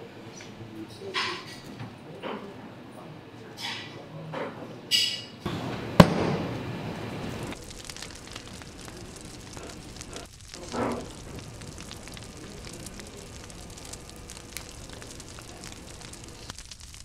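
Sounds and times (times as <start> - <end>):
flames crackling and hissing: 5.4 - 17.0
rush of flame: 5.5 - 17.0.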